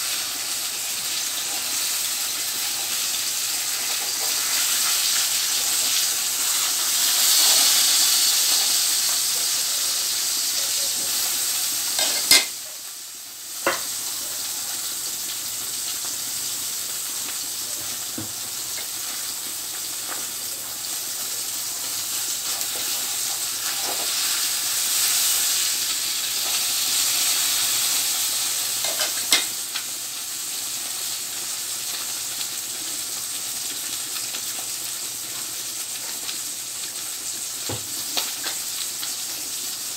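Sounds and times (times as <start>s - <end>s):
food sizzling in a wok: 0.0s - 39.9s.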